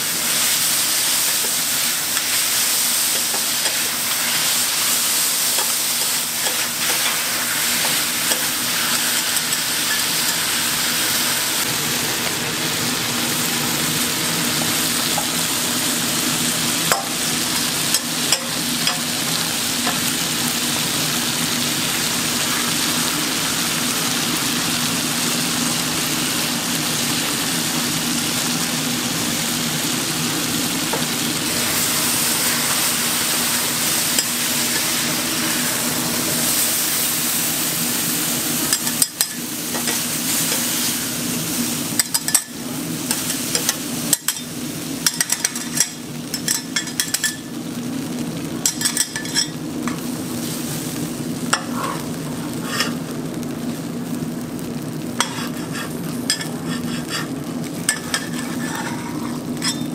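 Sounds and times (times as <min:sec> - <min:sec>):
egg sizzling on griddle: 0:00.0 - 0:59.9
metal spatulas scraping griddle: 0:52.6 - 0:53.0, 0:55.2 - 0:59.9.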